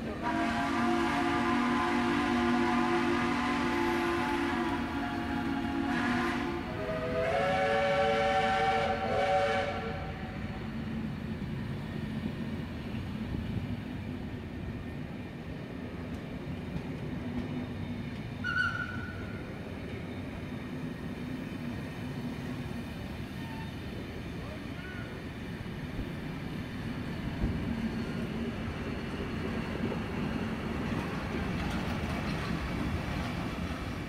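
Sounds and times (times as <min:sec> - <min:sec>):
train carriages rumbling on rails: 0:00.0 - 0:34.0
steam locomotive chime whistle: 0:00.1 - 0:10.6, 0:18.4 - 0:19.5.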